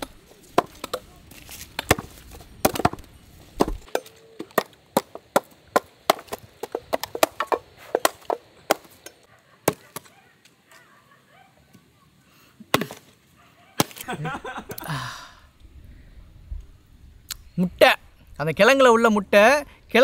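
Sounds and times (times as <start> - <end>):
blades chopping against wooden log: 1.8 - 9.0.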